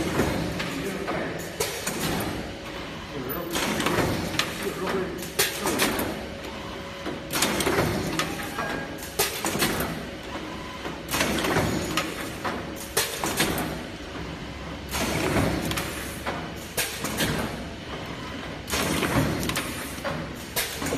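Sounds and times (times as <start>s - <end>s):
machine clatter and pneumatic hiss: 0.0s - 20.9s.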